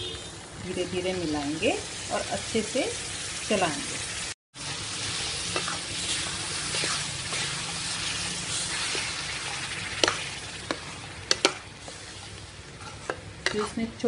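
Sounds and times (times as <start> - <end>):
paste sizzling in a pan: 0.9 - 14.0
metal spatula scraping a pan: 5.0 - 13.9.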